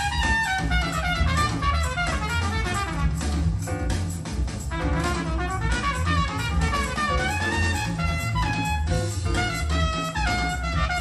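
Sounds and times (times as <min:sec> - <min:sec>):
horn melody: 0:00.0 - 0:03.9, 0:04.6 - 0:11.0
bass: 0:00.0 - 0:11.0
drum kit: 0:00.0 - 0:11.0
jazz through speakers: 0:00.0 - 0:11.0.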